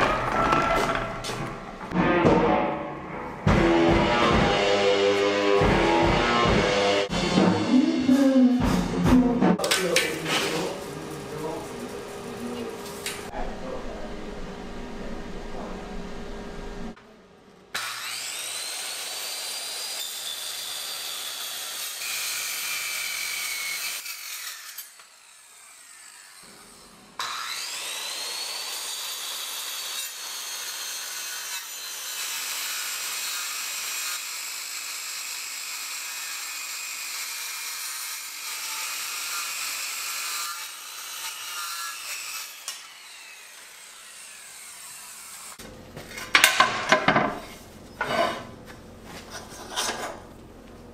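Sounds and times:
circular saw cutting steel: 0:17.8 - 0:45.6.

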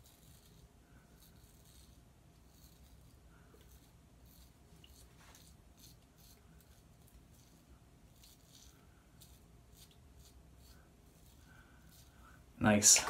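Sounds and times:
razor scraping stubble: 0:00.0 - 0:13.0.

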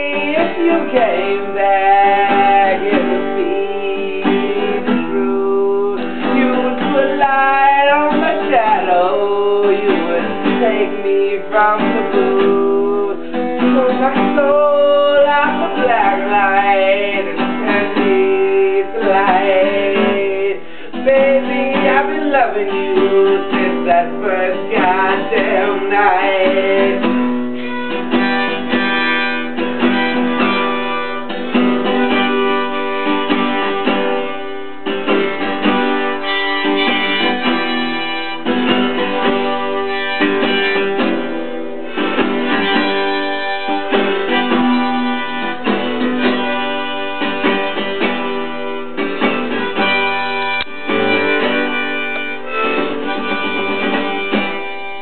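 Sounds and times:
acoustic guitar strumming: 0:00.0 - 0:55.0
harmonica melody: 0:00.0 - 0:55.0.

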